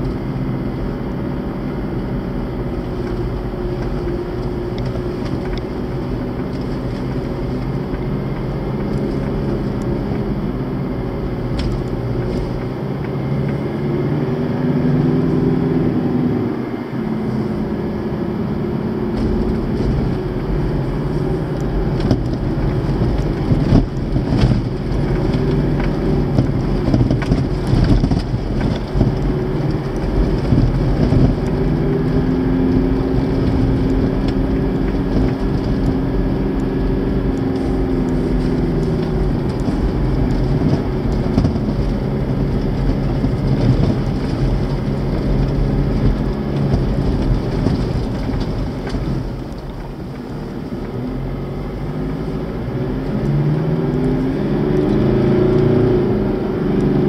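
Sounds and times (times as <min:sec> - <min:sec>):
vehicle engine running: 0:00.0 - 0:57.0
tyres rolling on gravel: 0:19.1 - 0:51.4
knocks and rattles from bumps: 0:37.3 - 0:50.3.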